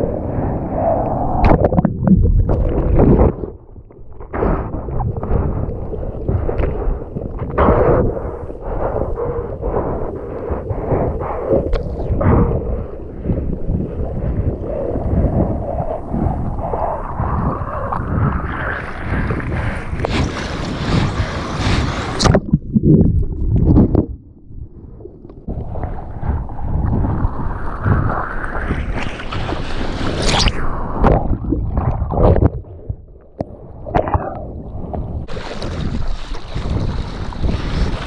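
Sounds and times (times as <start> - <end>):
wind buffeting microphone: 0.0 - 38.0
water rushing over surfboard: 10.8 - 24.1, 25.5 - 32.8, 33.4 - 38.0
hand paddling splashes: 35.3 - 38.0.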